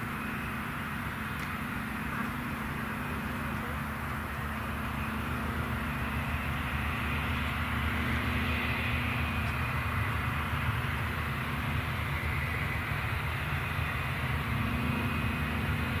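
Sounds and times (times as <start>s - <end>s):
jet engines whining: 0.0s - 16.0s.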